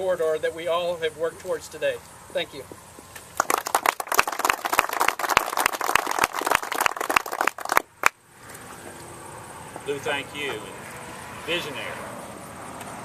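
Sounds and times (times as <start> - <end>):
hands clapping: 3.4 - 8.2.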